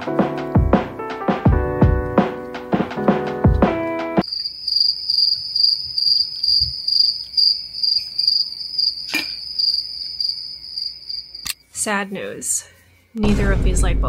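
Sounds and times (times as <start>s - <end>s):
music: 0.0s - 4.2s, 13.2s - 14.0s
cricket chirping: 4.2s - 11.6s.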